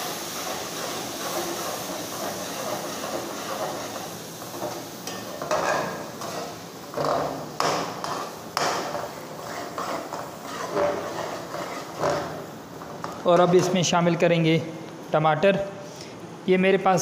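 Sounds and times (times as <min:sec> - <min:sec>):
food sizzling in oil: 0:00.0 - 0:13.8
metal spoon scraping a pot: 0:09.4 - 0:12.3.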